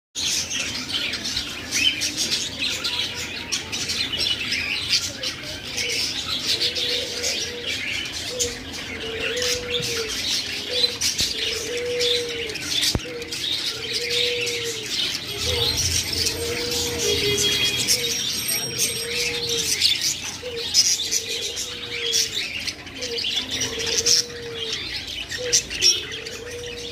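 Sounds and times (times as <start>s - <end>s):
budgerigars chattering and chirping: 0.2s - 26.9s
low dove-like coo: 5.8s - 22.4s, 23.0s - 26.9s.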